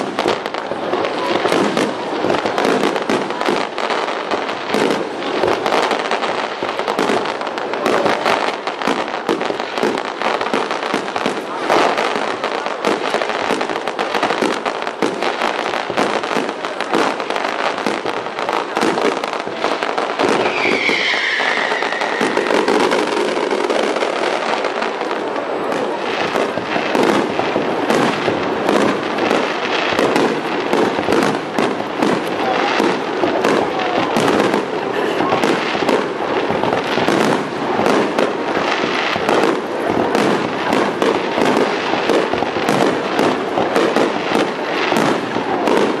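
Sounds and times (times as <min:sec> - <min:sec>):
fireworks bursts and crackling: 0:00.0 - 0:46.0
falling firework whistle: 0:20.2 - 0:24.7.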